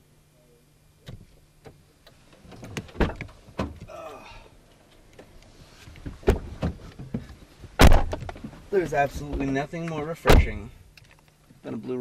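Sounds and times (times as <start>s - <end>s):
knocking thumps on car body: 6.0s - 8.6s.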